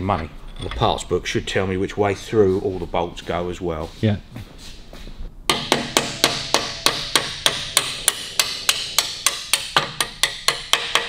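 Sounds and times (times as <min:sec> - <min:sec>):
sharp metallic taps: 0:05.5 - 0:11.0.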